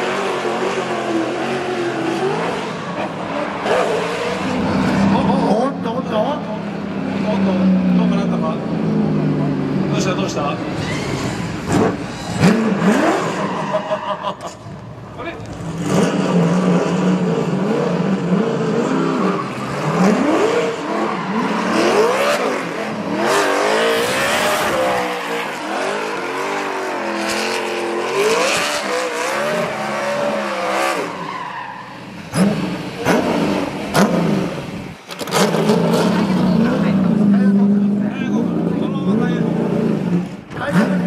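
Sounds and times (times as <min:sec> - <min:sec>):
car engine revving: 0:00.0 - 0:41.0
tyres squealing: 0:10.7 - 0:12.4.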